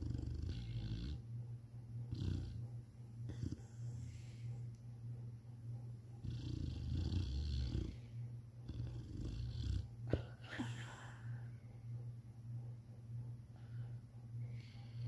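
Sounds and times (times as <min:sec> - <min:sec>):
dog snoring: 0:00.0 - 0:01.3, 0:02.0 - 0:04.5, 0:06.2 - 0:11.1
steady low hum: 0:00.0 - 0:15.0.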